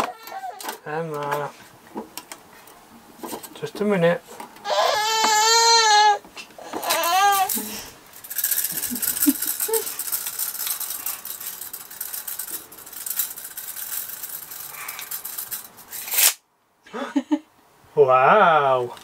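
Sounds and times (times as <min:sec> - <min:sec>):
baby babbling: 0:00.0 - 0:00.8, 0:04.6 - 0:07.6
tape measure rattling and clicking: 0:06.8 - 0:16.4.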